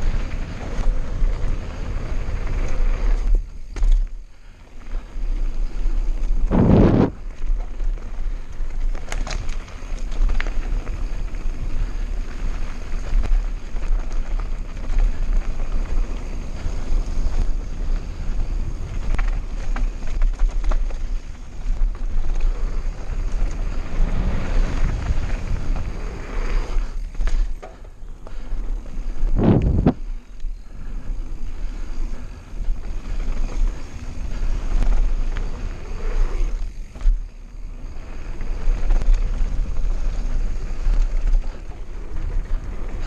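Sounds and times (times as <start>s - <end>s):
bike clicks and rattles: 0.0s - 43.0s
tyres rolling on dirt and gravel: 0.0s - 43.0s
wind buffeting microphone: 5.7s - 8.9s, 10.6s - 27.6s, 28.3s - 36.9s.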